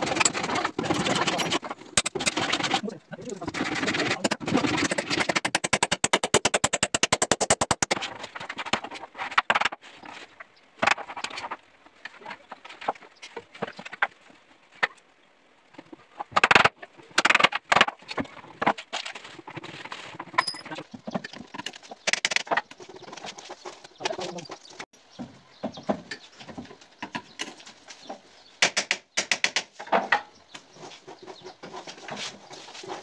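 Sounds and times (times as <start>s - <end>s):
plywood boards knocking and clattering: 3.5s - 9.8s, 10.8s - 15.0s, 15.8s - 33.0s
sharp wooden taps: 28.6s - 30.3s.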